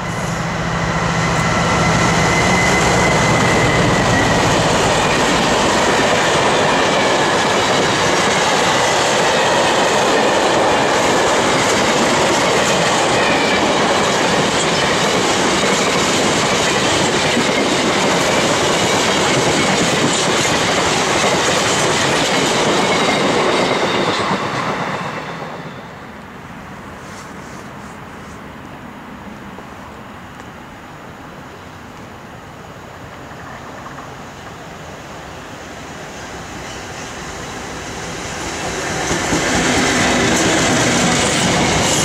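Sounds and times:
faint wheel squeal: 1.1s - 4.5s
train wheels clattering over rails: 1.2s - 25.9s, 36.7s - 42.0s.

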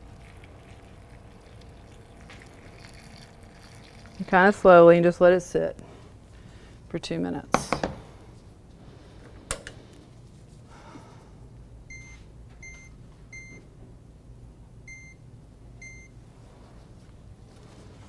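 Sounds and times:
oven keypad beeps: 11.9s - 13.7s, 14.9s - 16.2s.

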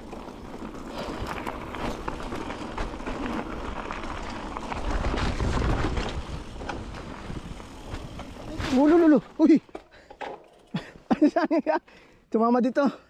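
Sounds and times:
footsteps crunching on rocky trail: 0.1s - 9.2s
wind rumbling on microphone: 0.5s - 8.9s.

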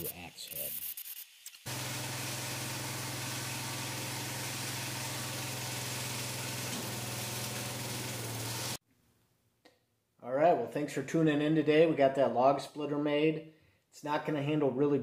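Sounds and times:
tractor engine running under load: 1.7s - 8.8s.

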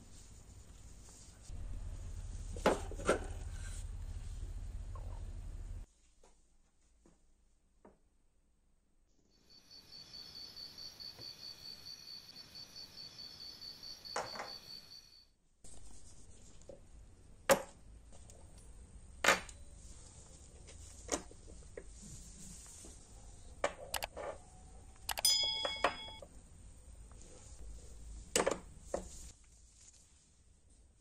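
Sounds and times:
metal clinks with ringing tone: 25.1s - 26.2s
metal parts tapping on wooden bench: 25.1s - 26.2s.

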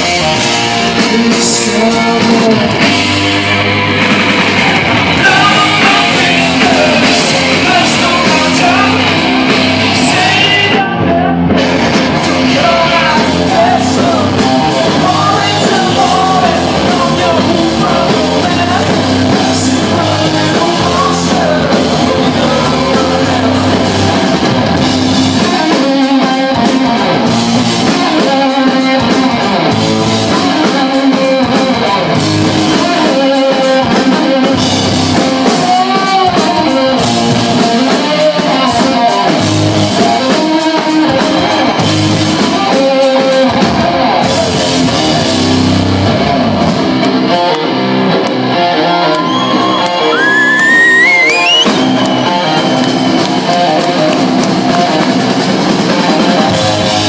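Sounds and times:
sung vocals: 0.0s - 45.6s
distorted bass guitar riff: 0.0s - 57.0s
drum kit: 0.0s - 57.0s.

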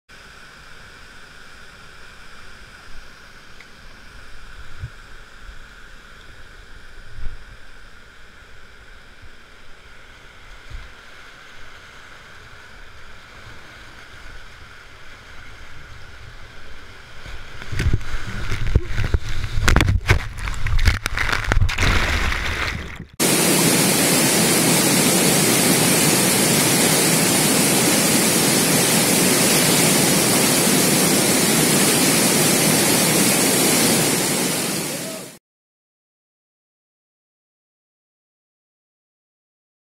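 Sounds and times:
waterfall pouring: 17.5s - 35.4s
river rapids rushing: 23.2s - 35.4s.

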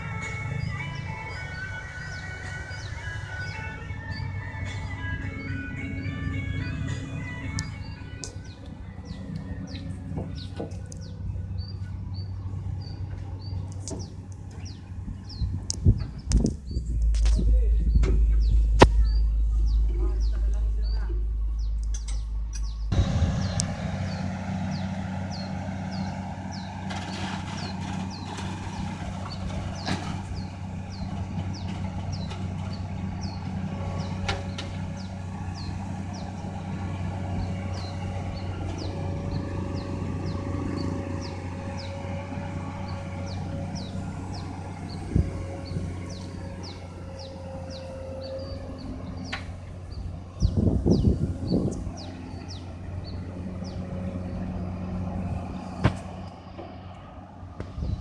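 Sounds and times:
bird chirping: 0.0s - 56.6s
diesel engines running: 0.0s - 58.0s
steady whine: 15.6s - 30.4s.

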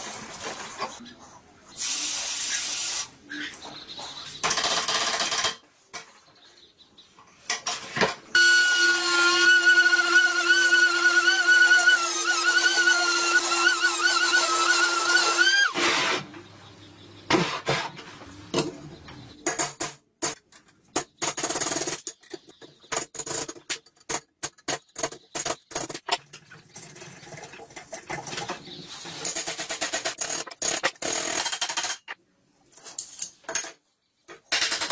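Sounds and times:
electric drill cutting metal: 8.4s - 15.8s.

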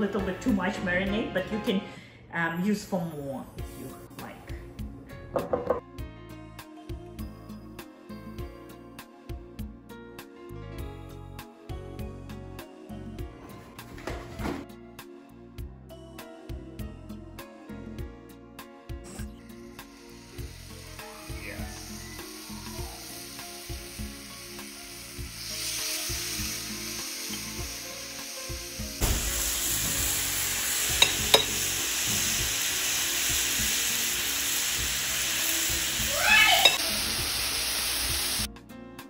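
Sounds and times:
soft background music: 0.0s - 39.0s
chicken sizzling on grill pan: 19.6s - 38.5s.

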